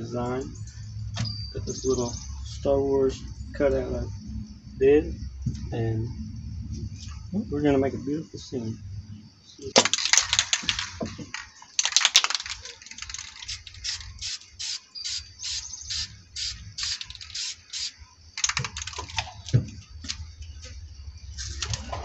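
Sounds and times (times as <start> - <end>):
spray can ball rattling: 9.8 - 19.2
hissing bursts of spray: 13.3 - 18.0.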